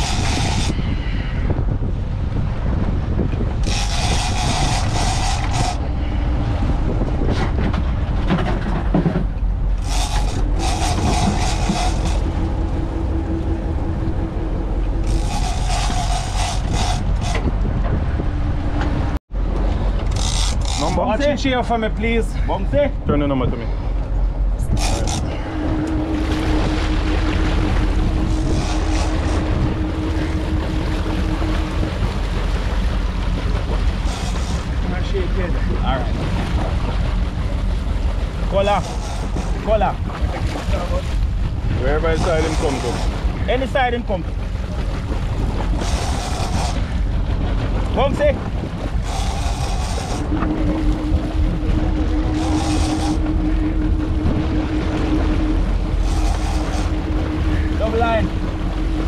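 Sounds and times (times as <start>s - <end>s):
wind on microphone: 0.0s - 21.8s, 22.6s - 59.0s
boat engine running: 0.0s - 59.0s
steady hum: 0.0s - 59.0s
water splashing against hull: 0.0s - 59.0s
high whirring bursts: 3.6s - 7.2s, 9.7s - 18.9s, 24.2s - 35.5s, 45.3s - 47.2s, 48.0s - 59.0s.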